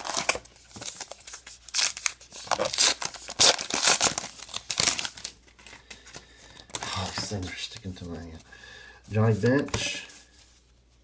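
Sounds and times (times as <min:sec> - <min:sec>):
wrapper tearing and crinkling: 0:00.0 - 0:05.4.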